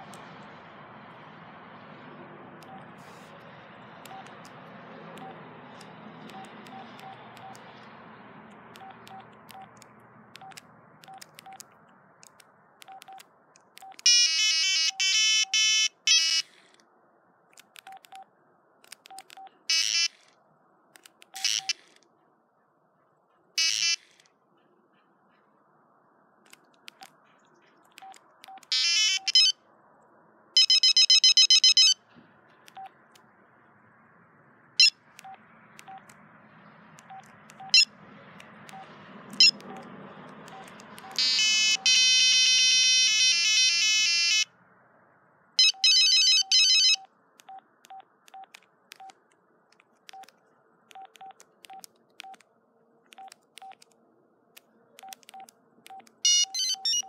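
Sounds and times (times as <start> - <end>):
phone electronic beeps: 2.6 - 2.9, 4.1 - 4.4, 5.2 - 5.4, 6.3 - 7.7, 12.8 - 13.2, 13.8 - 16.5, 21.4 - 21.9, 28.0 - 29.6, 30.6 - 32.0, 34.8 - 36.1, 37.1 - 37.9, 38.7 - 39.9, 40.5 - 44.4, 45.6 - 49.2, 55.0 - 57.0
phone tune snippets: 28.6 - 29.5, 30.6 - 32.0, 40.5 - 44.4, 45.6 - 47.1, 56.2 - 57.0.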